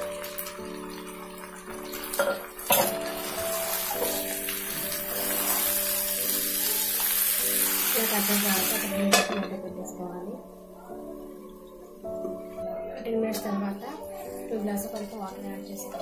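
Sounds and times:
chicken sizzling in hot oil: 0.0 - 9.2.

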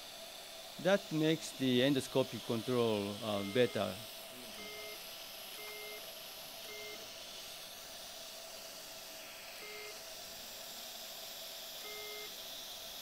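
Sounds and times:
steady hiss: 0.0 - 13.0
short electronic beeps: 4.6 - 5.0, 5.6 - 6.0, 6.7 - 7.0, 11.9 - 12.3.

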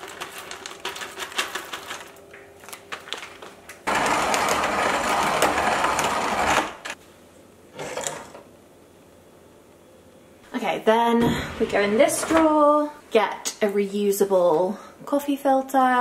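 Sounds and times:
coffee grinder grinding: 3.9 - 7.0.

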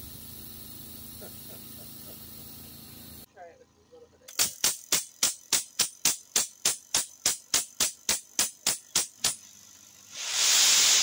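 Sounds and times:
spark igniter snapping: 4.3 - 9.5, 10.1 - 11.0.

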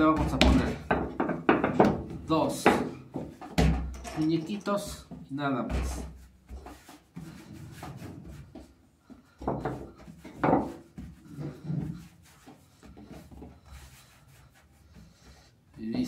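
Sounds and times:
hands pressing dough: 0.0 - 3.9.

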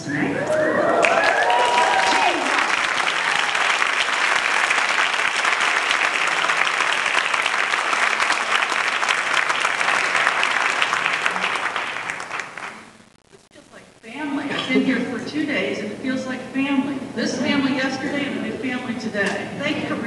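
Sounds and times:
audience applauding: 0.5 - 13.0.

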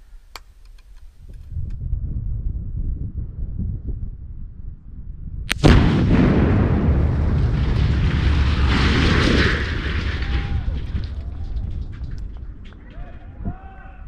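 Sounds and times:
explosion with sharp crack and rumbling boom: 5.4 - 13.9.

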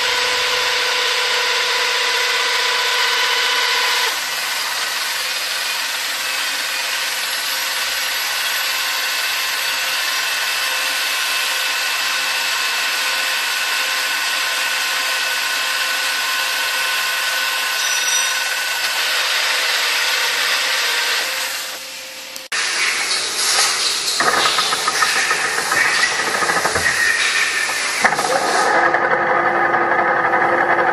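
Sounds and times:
milling cutter grinding metal: 0.0 - 21.9, 22.5 - 30.9.

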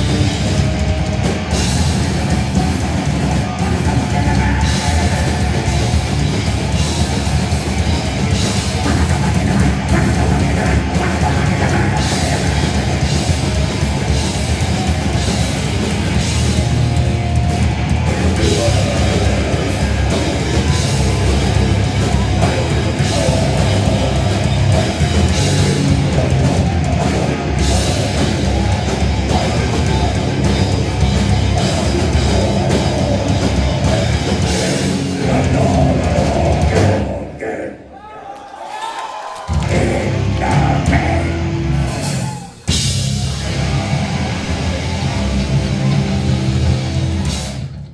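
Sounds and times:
drum kit: 0.0 - 37.4, 39.4 - 47.9
distorted electric guitars: 0.0 - 37.6, 39.4 - 47.9
vocalist on microphone: 2.3 - 6.8, 8.3 - 13.6, 18.0 - 38.4, 39.2 - 42.5.

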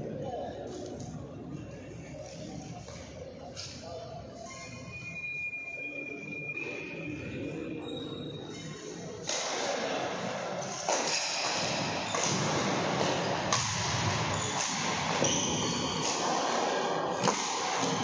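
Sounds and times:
rackets striking shuttlecock: 9.2 - 18.0.

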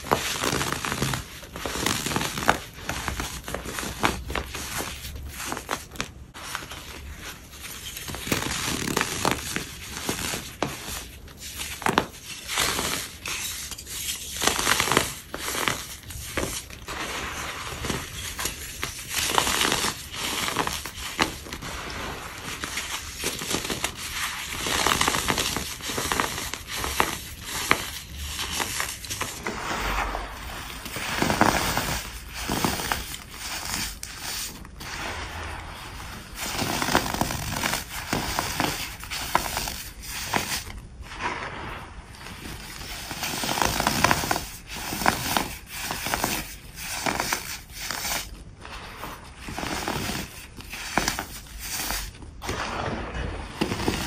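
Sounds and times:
powder tiles crunching: 0.0 - 54.0.

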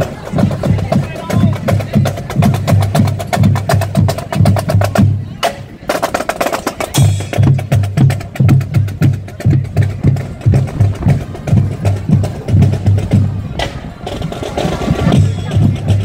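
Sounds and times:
bass drum beat: 7.0 - 13.8.

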